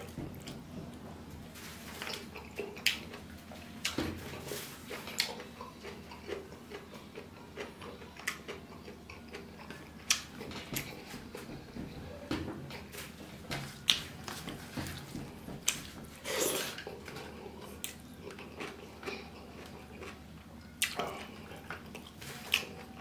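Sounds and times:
wet chewing smacks: 2.0 - 11.3, 15.7 - 22.8.

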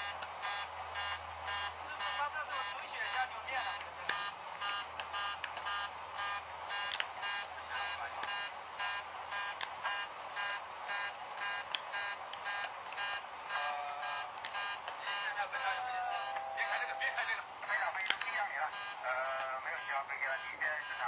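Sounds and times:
rapid cockpit alarm beeps: 0.0 - 21.0
low steady tone: 3.4 - 17.5
sharp clicks: 3.8 - 8.8, 9.4 - 13.6, 14.3 - 15.2, 18.0 - 19.6.

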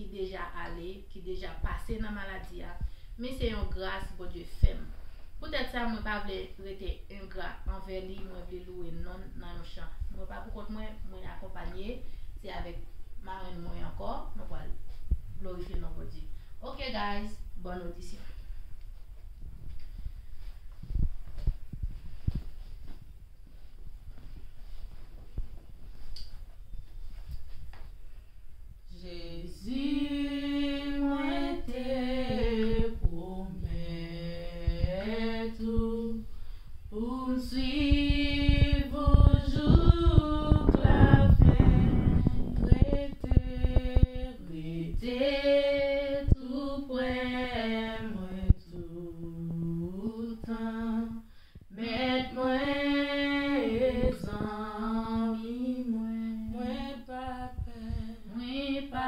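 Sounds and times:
low rumbling noise: 28.0 - 59.0
women singing a hymn a cappella: 28.9 - 59.0.

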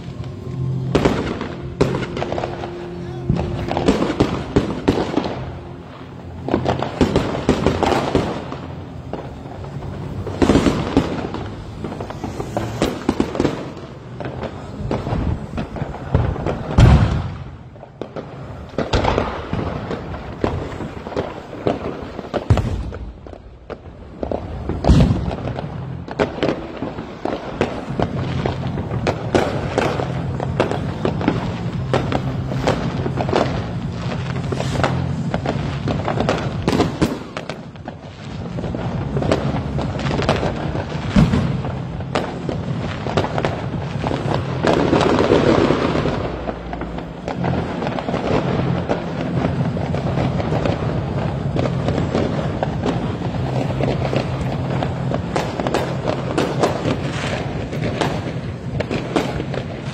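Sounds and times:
fireworks crackling and popping: 0.0 - 59.9
loud firework bangs: 0.0 - 59.9.

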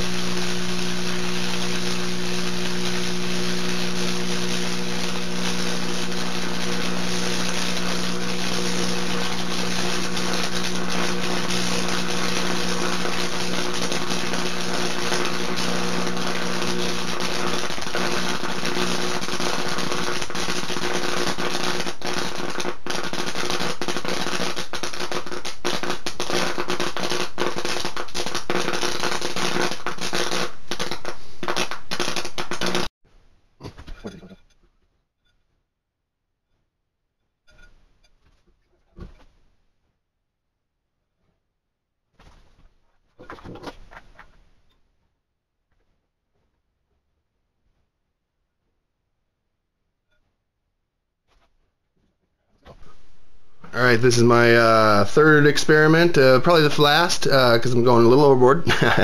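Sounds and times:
electrical hum: 0.0 - 20.8
loud sizzling hiss: 0.0 - 32.9, 52.7 - 59.0
sharp crackles and pops: 0.0 - 32.9, 52.6 - 59.0.

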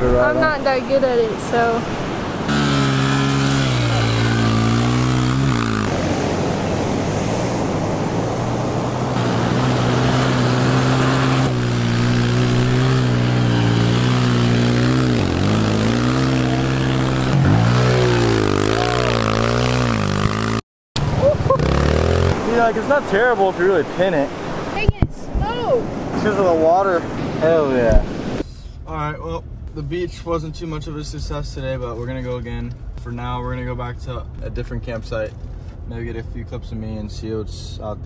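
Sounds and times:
dirt bike engine revving: 2.4 - 24.1.

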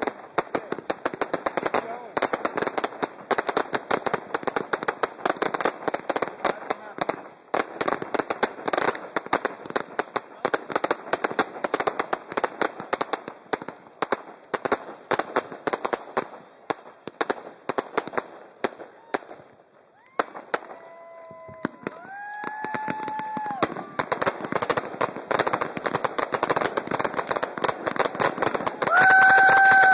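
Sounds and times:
fireworks bursting and crackling: 0.0 - 29.9
rising firework whistles: 18.8 - 25.6, 28.4 - 29.9.

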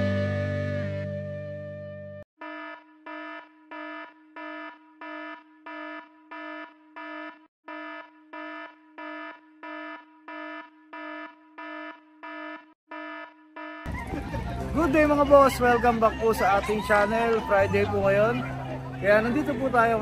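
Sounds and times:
electronic alarm beeping: 2.4 - 14.0.

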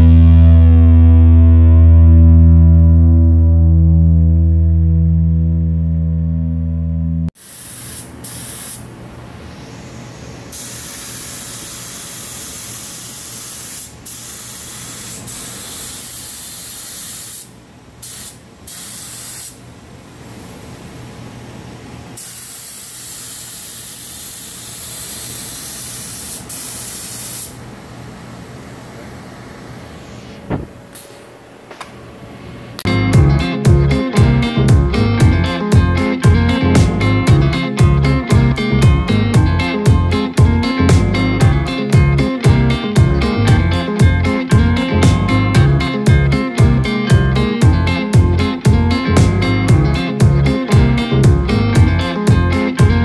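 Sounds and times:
music: 0.0 - 7.3, 32.9 - 53.0
spray gun hissing: 7.4 - 8.8, 10.5 - 19.6, 22.2 - 27.6.

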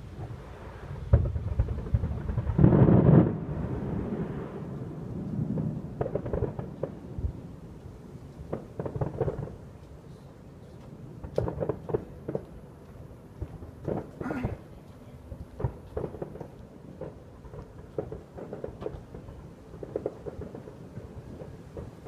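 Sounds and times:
distant fireworks booming: 0.0 - 22.0
fireworks sharp pops: 1.0 - 4.4, 5.3 - 7.4, 8.4 - 9.9, 10.8 - 22.0.

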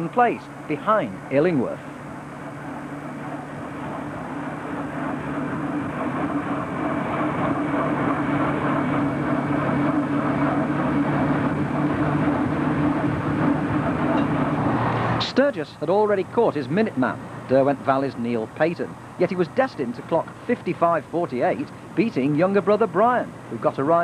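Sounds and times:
rushing wind: 0.0 - 15.5
motorcycle engine running: 0.0 - 17.6
road noise: 0.0 - 24.0.

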